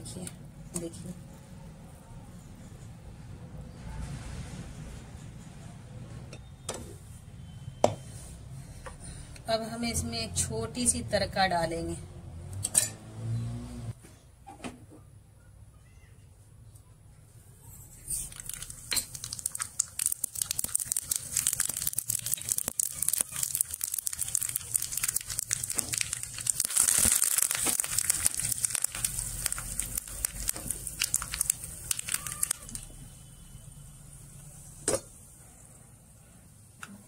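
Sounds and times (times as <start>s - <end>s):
spices sizzling in hot oil: 18.1s - 33.0s.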